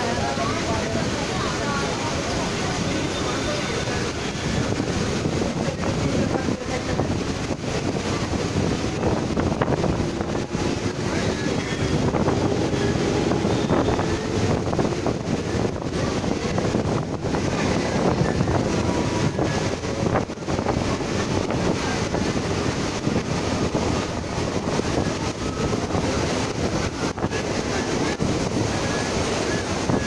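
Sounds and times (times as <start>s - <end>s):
train wheels rumbling on rails: 0.0s - 30.0s
wind buffeting microphone: 0.0s - 30.0s.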